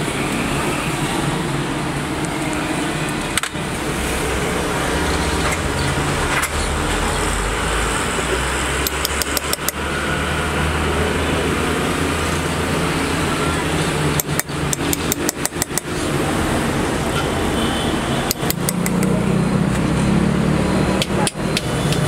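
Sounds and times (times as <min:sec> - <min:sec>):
sharp clicks: 0:08.8 - 0:09.8, 0:14.1 - 0:15.9, 0:18.2 - 0:19.2.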